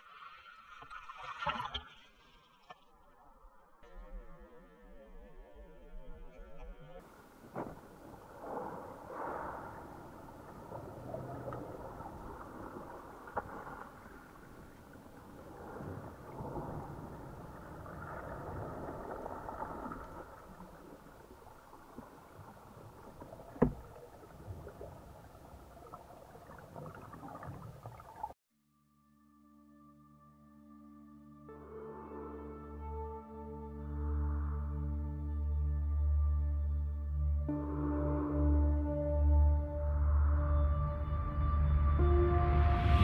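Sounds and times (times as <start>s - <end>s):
underwater rushing of waves: 7.0s - 28.4s.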